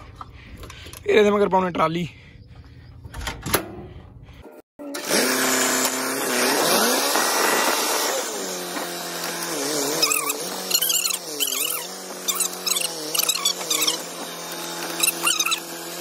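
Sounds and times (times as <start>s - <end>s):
tractor diesel engine: 5.0s - 16.0s.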